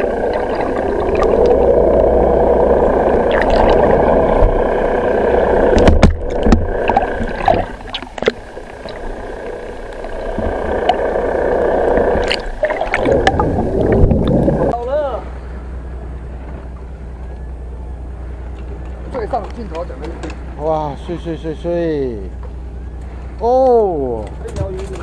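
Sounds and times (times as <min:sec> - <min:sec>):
water rushing and gurgling: 0:00.0 - 0:16.4
sharp knocks and clicks: 0:05.7 - 0:08.4.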